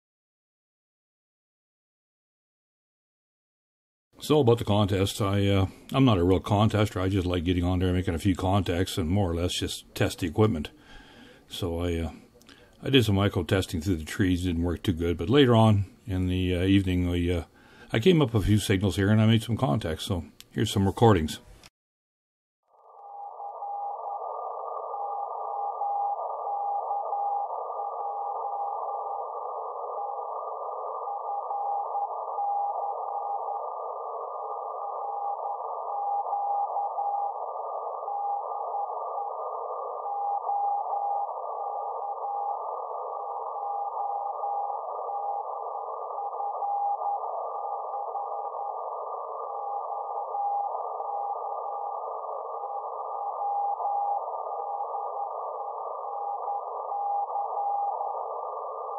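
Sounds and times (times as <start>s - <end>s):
radio receiver hiss: 23.0s - 58.9s.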